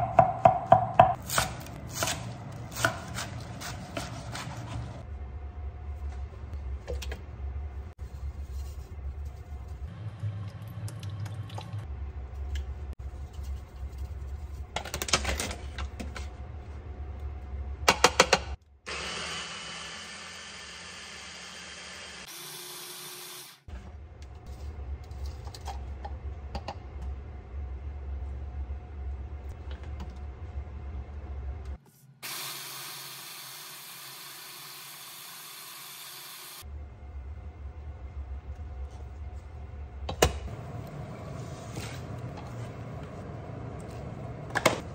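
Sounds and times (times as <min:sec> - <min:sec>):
electric hand blender running: 0:18.9 - 0:23.6
low hum: 0:36.7 - 0:44.9.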